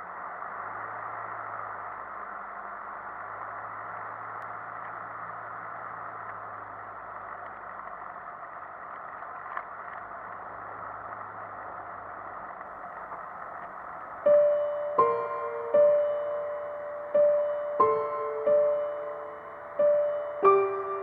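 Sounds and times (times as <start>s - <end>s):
airplane engine and propeller droning: 9.5s - 21.0s.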